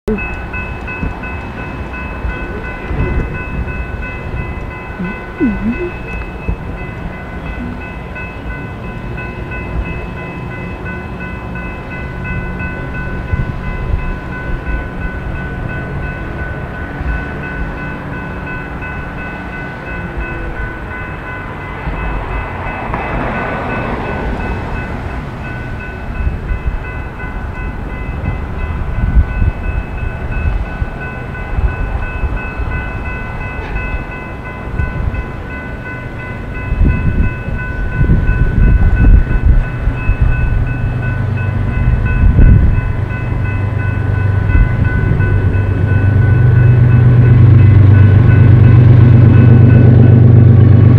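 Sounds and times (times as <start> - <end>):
crossing warning bell ringing: 0.1 - 50.9
freight train rumbling: 0.1 - 50.9.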